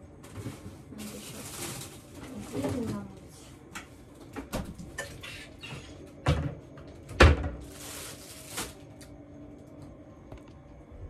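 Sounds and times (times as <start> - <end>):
refrigerator door thud: 6.2 - 7.7.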